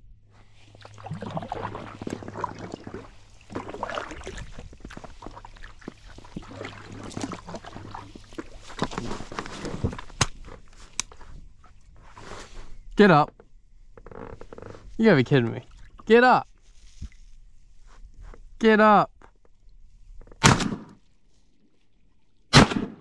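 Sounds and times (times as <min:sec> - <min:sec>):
paddle splashing in water: 0:00.4 - 0:12.6
paddle knocking against hull: 0:00.8 - 0:10.5.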